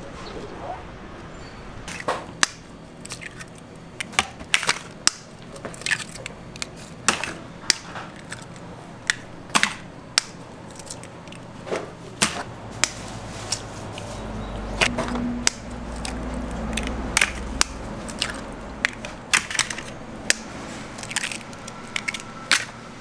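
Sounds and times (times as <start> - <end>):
eggshells cracking: 1.9 - 11.5, 14.8 - 22.7.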